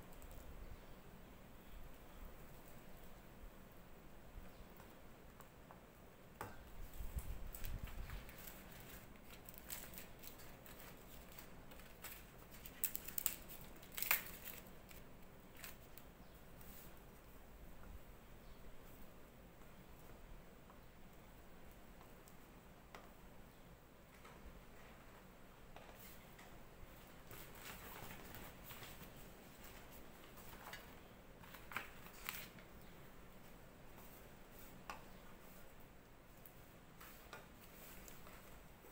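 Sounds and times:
leaf rustling: 6.9 - 16.0
leaves crackling and crinkling: 7.5 - 16.1, 27.2 - 32.7.

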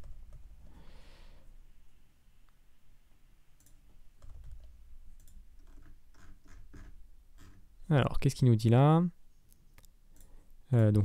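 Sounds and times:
computer keys clicking: 3.6 - 6.6.

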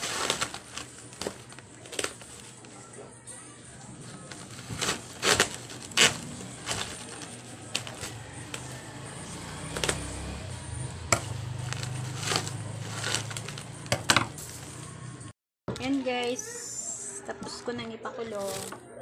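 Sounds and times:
plastic sack ripping: 0.0 - 2.7, 4.2 - 10.5, 11.1 - 14.8.

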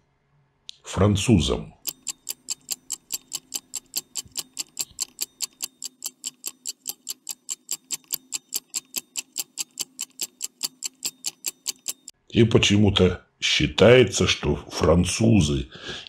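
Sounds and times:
stopwatch ticking: 1.8 - 12.2.

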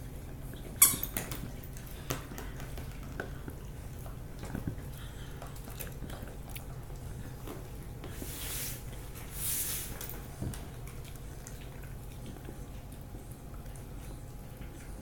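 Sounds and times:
dogs gnawing chew sticks: 0.0 - 15.0.

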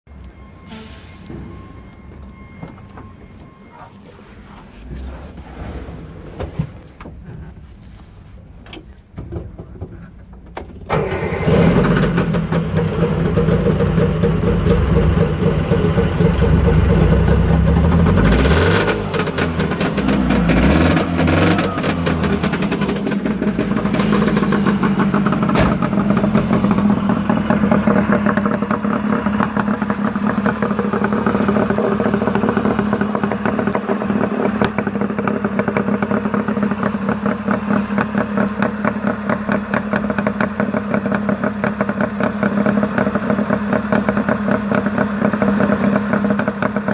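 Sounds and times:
two-stroke car engine revving and idling: 10.9 - 46.9.

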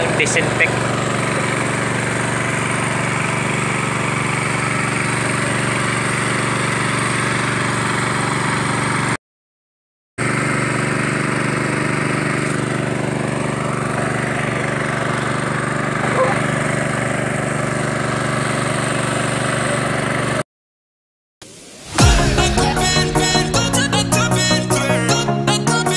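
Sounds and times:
small engine droning: 0.0 - 9.2, 10.2 - 20.4.

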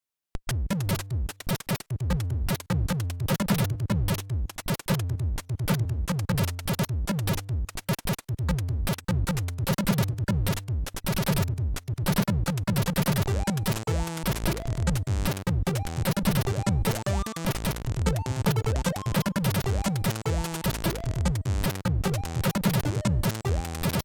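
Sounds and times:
chiptune music: 13.3 - 24.0.

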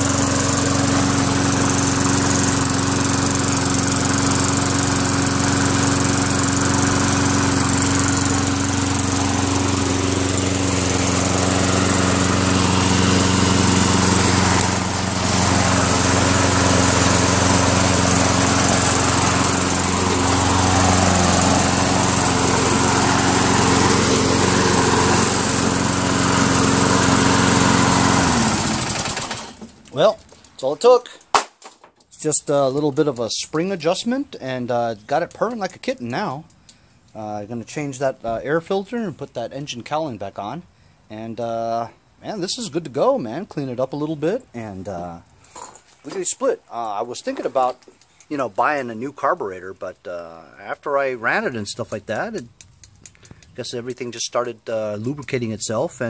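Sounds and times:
lawn mower engine running: 0.0 - 30.7, 44.8 - 56.0.

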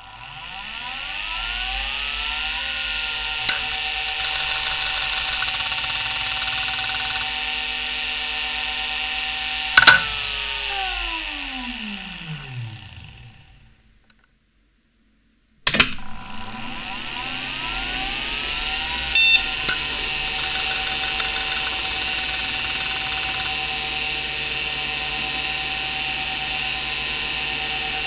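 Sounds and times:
hard drive buzzing: 0.0 - 13.8, 15.8 - 28.0
hard drive whine: 0.0 - 14.2, 15.7 - 28.0
sharp clack: 9.8 - 10.2.

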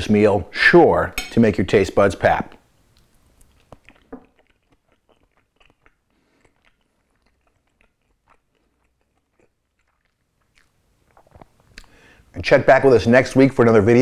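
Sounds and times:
chewing with mouth clicks: 2.8 - 12.0.

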